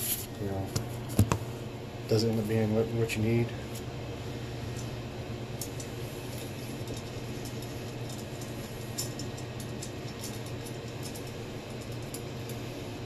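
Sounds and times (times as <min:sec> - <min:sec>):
low hum: 0:00.0 - 0:13.0
metal parts clicking: 0:05.6 - 0:12.6.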